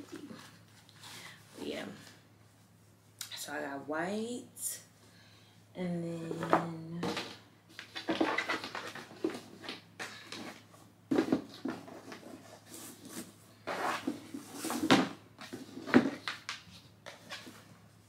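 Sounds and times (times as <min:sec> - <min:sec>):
packaging rustling: 0:07.2 - 0:13.3.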